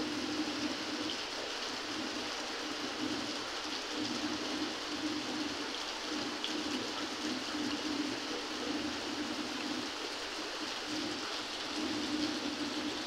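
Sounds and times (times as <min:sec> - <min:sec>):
heavy rain on a rooftop: 0:00.0 - 0:13.0.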